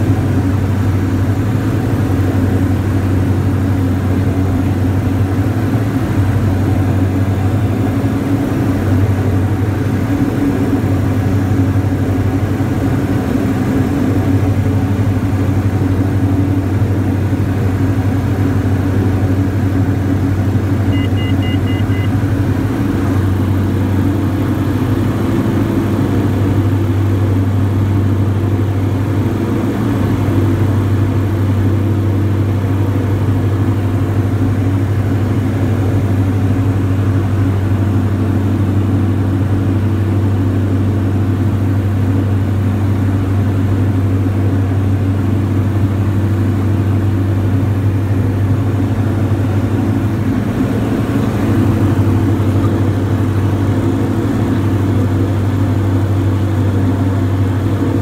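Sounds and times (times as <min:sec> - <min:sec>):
aircraft engines droning in cabin: 0:00.0 - 0:58.0.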